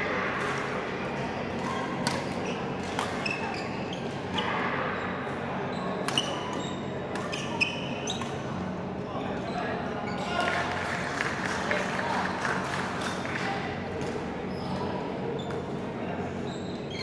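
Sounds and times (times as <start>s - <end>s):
shoes squeaking on court: 2.4s - 4.5s, 5.7s - 8.4s, 16.4s - 17.0s.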